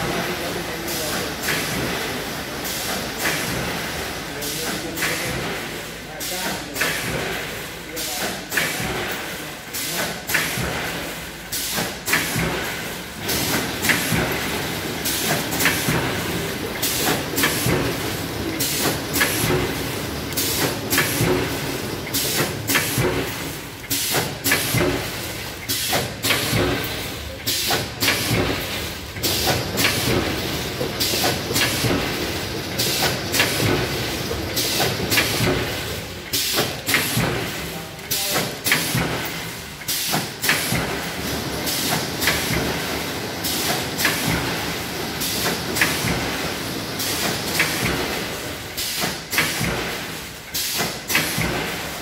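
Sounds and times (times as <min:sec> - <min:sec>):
machine clack: 0:00.0 - 0:52.0.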